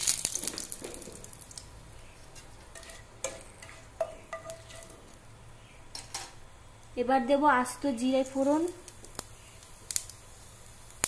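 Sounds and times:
leaf sizzling in hot oil: 0.0 - 11.0
spatula clinking against pan: 2.8 - 4.9.

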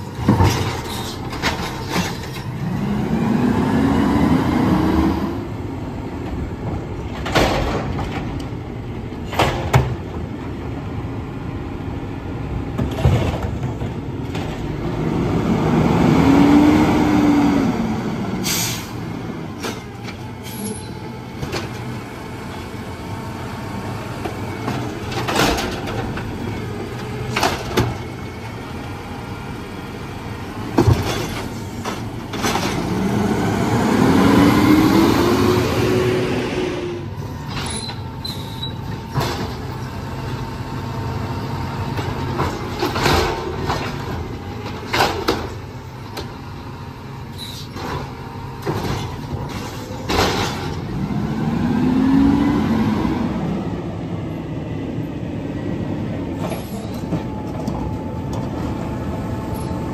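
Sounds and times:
engine revving whine: 32.6 - 38.4, 50.6 - 59.9.

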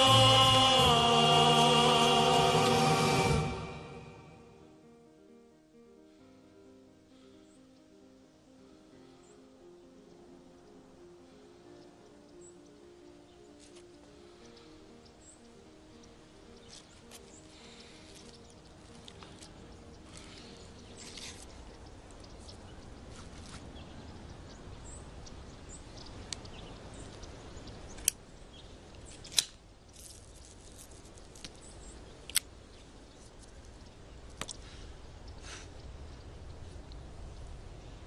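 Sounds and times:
outdoor ambience: 0.0 - 38.0.

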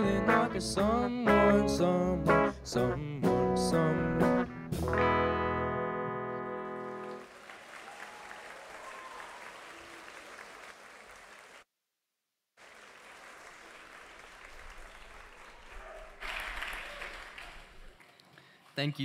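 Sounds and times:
rock band final chord: 4.7 - 7.2
audience applauding: 6.6 - 11.6, 12.6 - 19.0.

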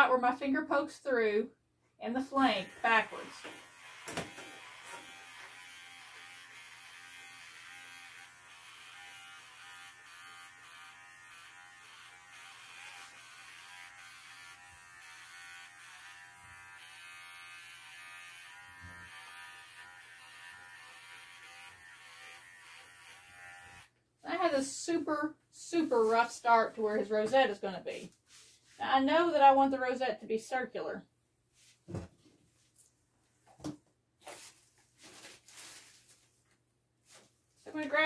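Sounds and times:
pet clipper buzzing: 2.6 - 24.0.

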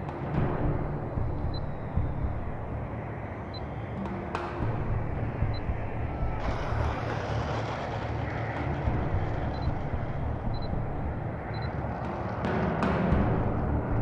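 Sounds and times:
wind rumble on microphone: 0.0 - 14.0
model jet fan rushing: 3.9 - 13.8.

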